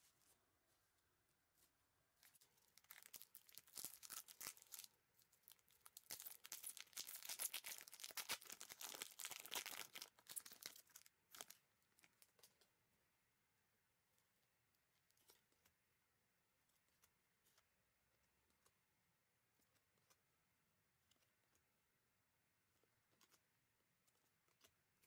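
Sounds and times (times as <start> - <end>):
foil pack crinkling and tearing: 2.3 - 12.5.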